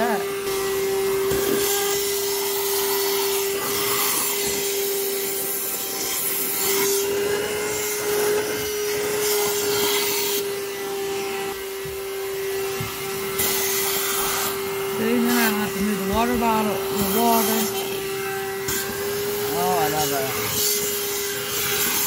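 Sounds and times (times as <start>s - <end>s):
handheld vacuum cleaner running: 0.0s - 22.0s.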